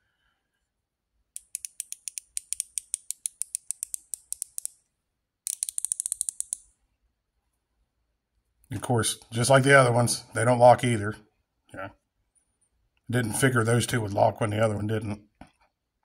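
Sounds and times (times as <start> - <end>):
ratchet clicking: 1.4 - 4.8, 5.5 - 6.7.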